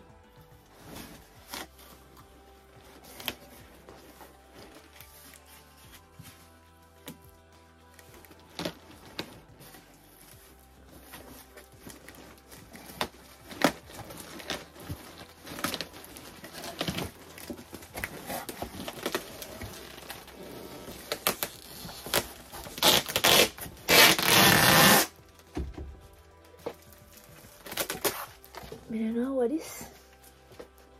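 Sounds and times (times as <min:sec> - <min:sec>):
packaging rustling and crackling: 0:00.6 - 0:07.2, 0:07.9 - 0:29.0
packaging tearing: 0:11.0 - 0:25.3, 0:27.4 - 0:28.8.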